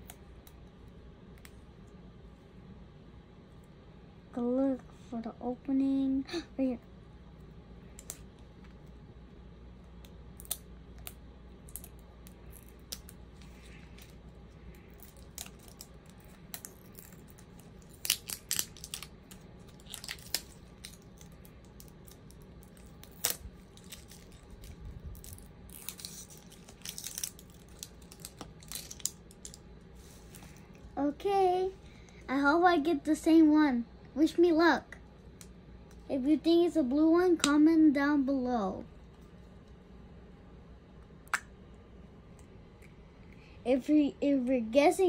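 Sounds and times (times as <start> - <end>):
low steady hum: 0.0 - 45.0
wrapping crinkling: 11.6 - 30.8
short tearing sounds: 15.0 - 29.2.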